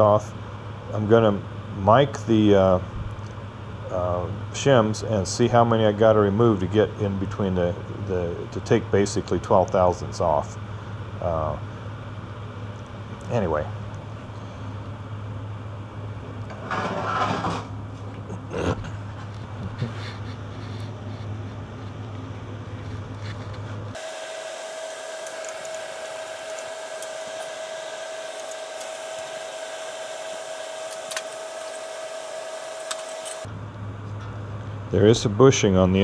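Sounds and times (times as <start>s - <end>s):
high-pitched whine: 23.9s - 33.5s.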